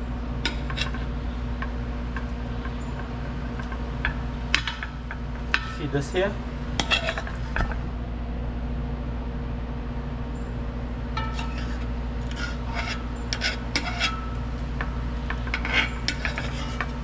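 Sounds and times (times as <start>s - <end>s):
steady low hum: 0.0s - 17.0s
spoon scraping a pot: 0.4s - 1.2s, 6.8s - 7.5s, 11.2s - 17.0s.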